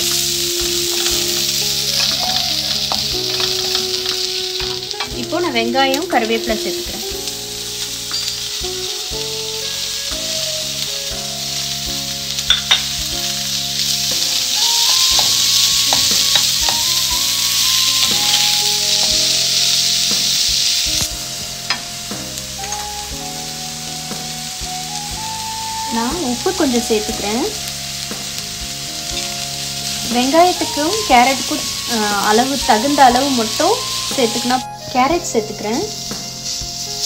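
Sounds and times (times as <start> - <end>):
onions sizzling in hot oil: 0.0 - 37.0.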